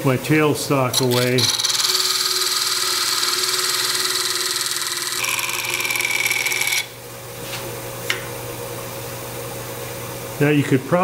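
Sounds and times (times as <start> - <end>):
parting tool cutting spinning wood: 0.9 - 6.9.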